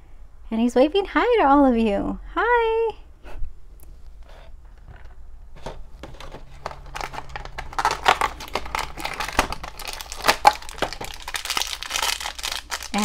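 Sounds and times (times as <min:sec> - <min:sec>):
foil bag crinkling: 0:06.0 - 0:13.0.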